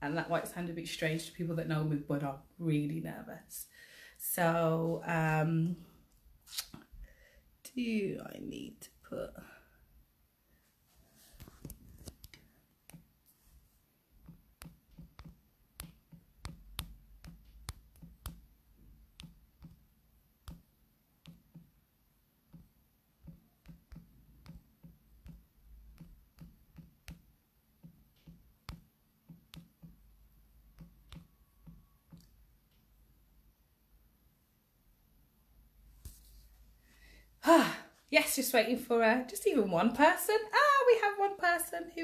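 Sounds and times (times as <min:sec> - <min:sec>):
fingertips tapping touchscreen: 0:11.4 - 0:13.2, 0:14.1 - 0:21.8, 0:22.5 - 0:33.0.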